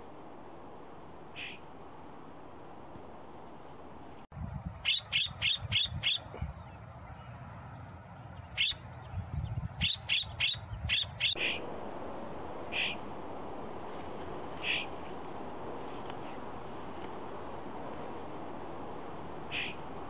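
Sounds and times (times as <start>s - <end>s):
bird calling: 4.5s - 11.4s.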